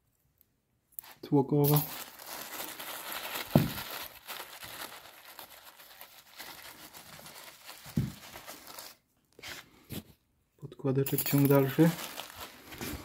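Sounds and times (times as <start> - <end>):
plastic wrapping crinkling: 1.0 - 9.1, 11.4 - 13.0.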